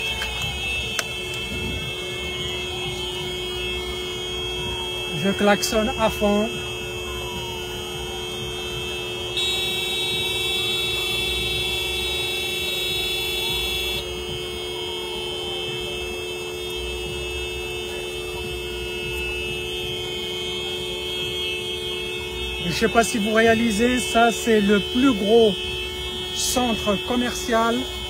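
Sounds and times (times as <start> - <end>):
second louder horn: 0.0 - 28.0
car horn held down: 8.3 - 14.1.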